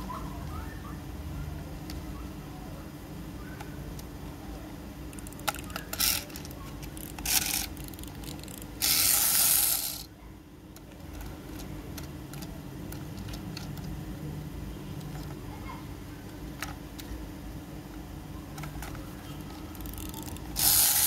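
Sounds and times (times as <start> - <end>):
plastic toy parts clicking: 5.1 - 10.1, 10.7 - 14.0, 15.0 - 15.4, 16.3 - 17.2, 17.9 - 21.0.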